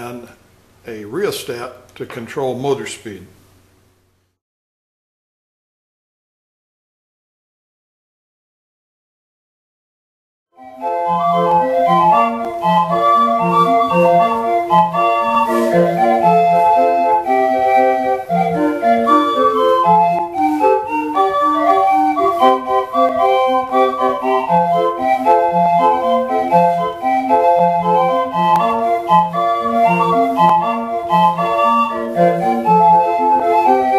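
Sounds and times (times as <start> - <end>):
pipe organ playing lively tune: 10.6 - 33.9.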